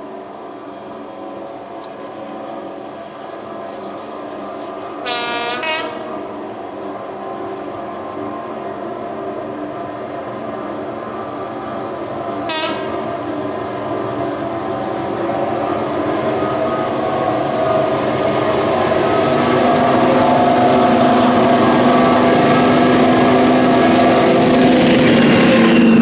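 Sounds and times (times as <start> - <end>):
diesel locomotive engine working hard: 0.0 - 26.0
locomotive horn blast: 4.2 - 10.0, 10.6 - 13.6.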